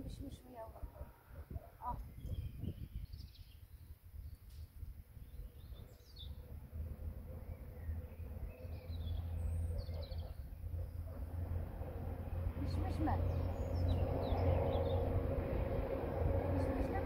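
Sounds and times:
small birds chirping: 0:00.0 - 0:11.3, 0:12.6 - 0:17.0
low steady rumble: 0:06.0 - 0:17.0.

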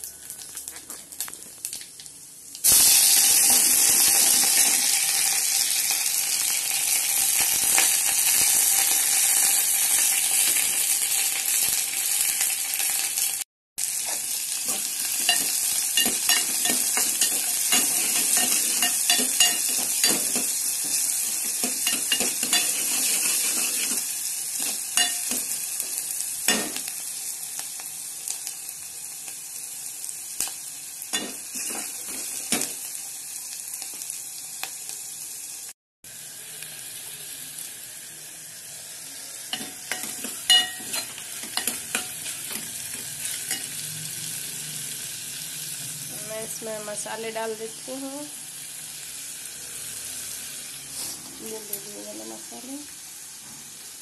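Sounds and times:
food sizzling in hot oil: 0:00.0 - 0:54.0
metal ladle scraping a pot: 0:20.8 - 0:24.1.

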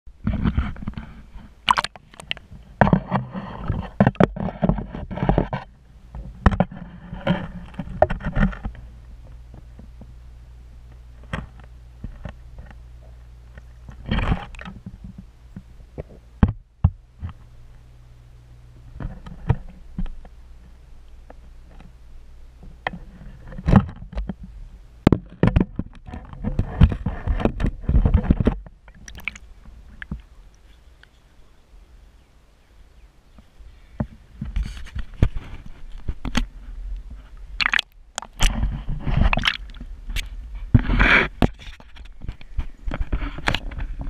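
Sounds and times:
low underwater hum: 0:00.1 - 0:44.0
rushing water noise: 0:01.6 - 0:02.4, 0:28.9 - 0:30.7, 0:37.6 - 0:38.6, 0:39.2 - 0:39.8.

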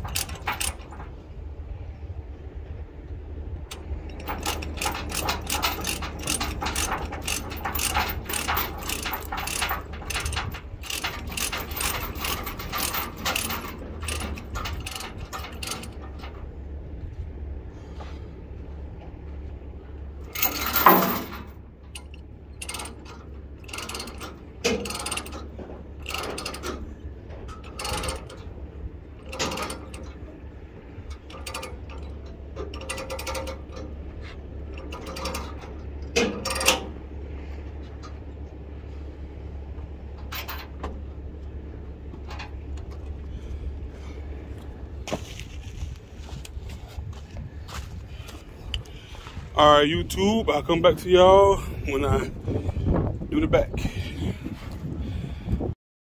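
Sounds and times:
ratchet clicking: 0:00.0 - 0:01.0, 0:03.7 - 0:16.0, 0:20.3 - 0:25.4
steady low hum: 0:00.0 - 0:55.8
loud metal clank: 0:20.3 - 0:21.6.

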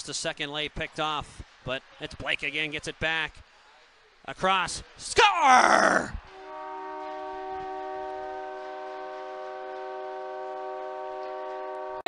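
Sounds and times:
goal horn blowing: 0:06.3 - 0:12.0.

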